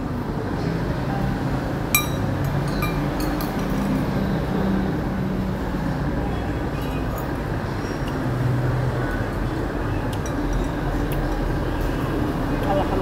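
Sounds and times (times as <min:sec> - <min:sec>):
spoon clinking on ceramic bowl: 0:02.0 - 0:03.9.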